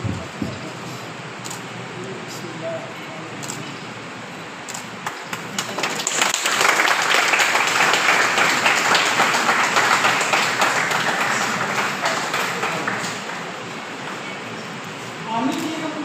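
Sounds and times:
people applauding: 5.0s - 14.8s.

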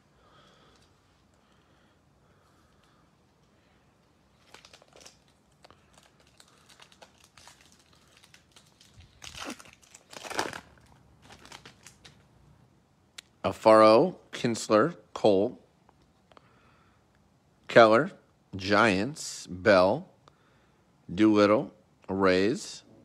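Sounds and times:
wrapper tearing and crinkling: 4.3s - 12.2s.

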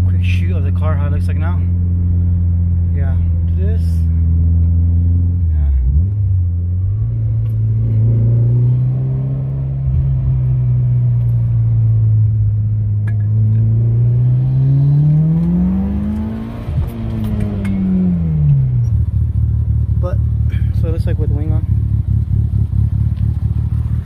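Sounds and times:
turbocharged car engine revving: 4.3s - 12.4s, 13.0s - 24.0s.

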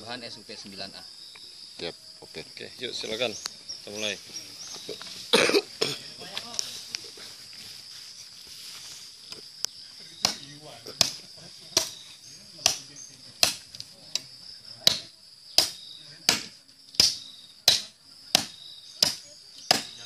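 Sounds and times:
high insect trill: 0.0s - 20.0s
knife chopping into wood: 12.6s - 14.2s, 14.8s - 20.0s.

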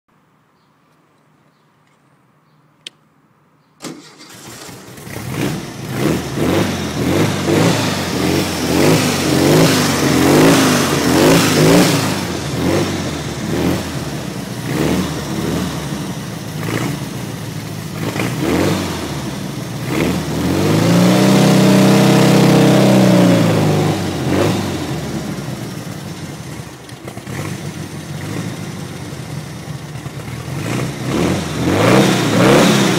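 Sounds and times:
dune buggy engine revving: 3.9s - 32.9s.

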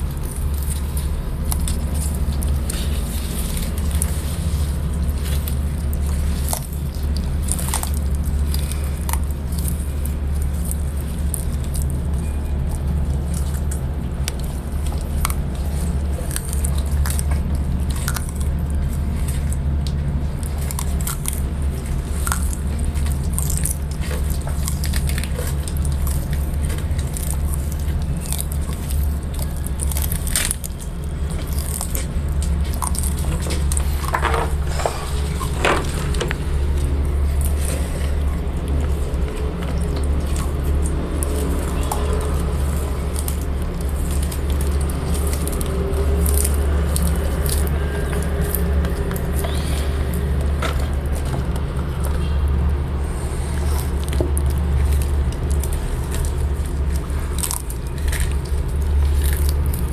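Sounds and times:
steady low rumble: 0.0s - 59.9s
tortoises chewing leaves: 0.0s - 59.9s.

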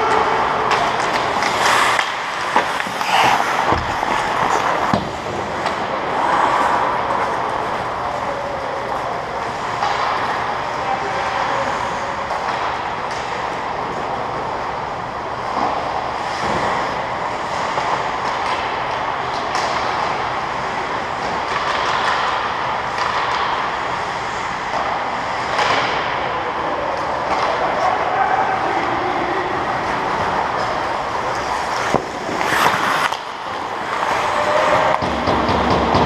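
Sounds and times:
hockey sticks and puck clicking: 0.0s - 14.7s, 15.4s - 26.3s, 29.8s - 36.0s
skate blades on ice: 0.0s - 36.0s.

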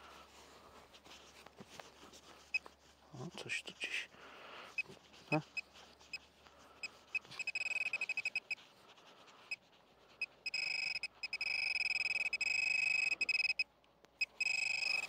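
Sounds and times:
continuous high tone: 6.8s - 8.6s, 10.2s - 15.0s
metal detector pinpointer beeping: 6.8s - 8.6s, 10.2s - 15.0s.

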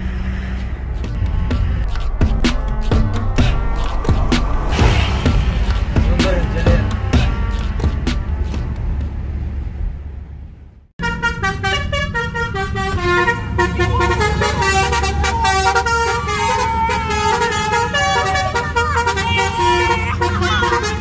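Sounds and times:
low vehicle rumble: 0.0s - 21.0s
multi-tone car horn melody: 11.0s - 21.0s.

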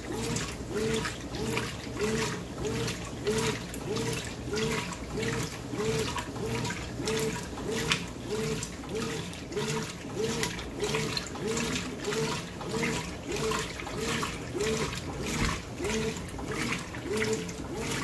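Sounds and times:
washing machine motor humming: 0.0s - 18.0s
water churning and sloshing: 0.0s - 18.0s.

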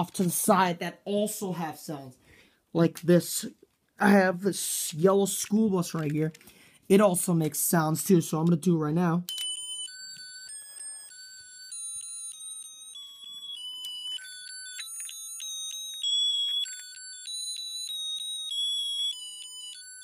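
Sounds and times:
electronic toy melody beeps: 9.3s - 20.0s.

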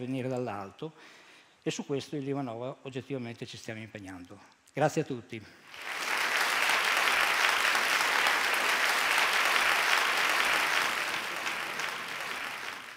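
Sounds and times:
audience applauding: 5.7s - 12.9s.

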